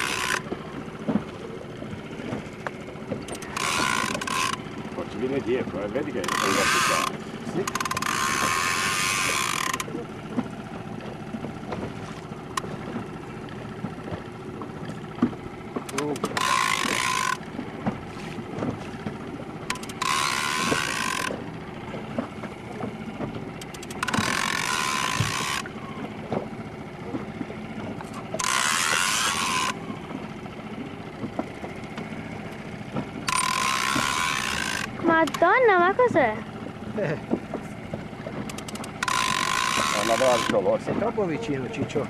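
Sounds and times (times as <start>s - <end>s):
fishing reel ratchet buzzing: 0.0s - 0.5s, 3.3s - 4.7s, 6.1s - 9.9s, 15.9s - 17.5s, 19.7s - 21.4s, 23.6s - 25.8s, 28.3s - 29.8s, 33.2s - 35.4s, 38.5s - 40.6s.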